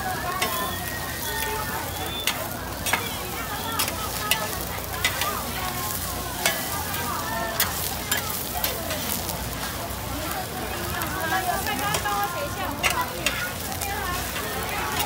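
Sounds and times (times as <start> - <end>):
food sizzling on griddle: 0.0 - 15.0
spatula clicking on griddle: 0.3 - 0.8, 2.1 - 9.8, 10.9 - 15.0.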